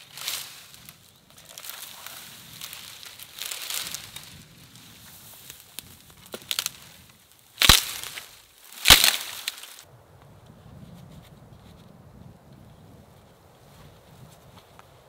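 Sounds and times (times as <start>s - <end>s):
dry branches cracking: 0.0s - 10.3s
small twig snaps: 0.1s - 4.4s, 5.4s - 7.0s, 7.6s - 9.8s.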